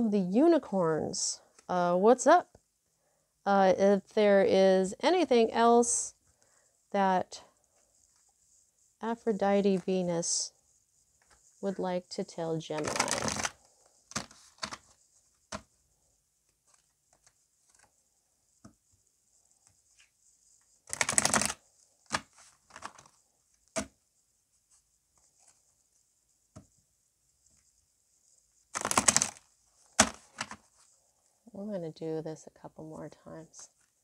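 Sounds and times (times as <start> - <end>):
cards being shuffled: 12.7 - 15.7, 16.6 - 17.9, 20.8 - 23.9, 28.7 - 30.9
cards tapping and clicking: 14.1 - 14.9, 20.9 - 23.1, 28.8 - 29.4, 30.0 - 30.6.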